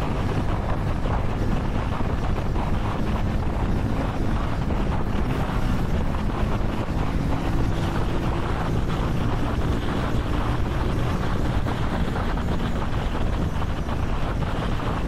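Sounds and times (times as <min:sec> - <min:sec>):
faint motorcycle engine drone: 0:00.0 - 0:15.0
wind buffeting microphone: 0:00.0 - 0:15.0.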